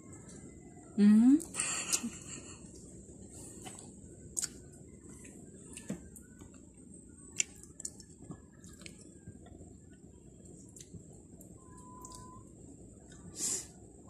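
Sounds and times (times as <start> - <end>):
wet squishes of eating: 2.7 - 11.0.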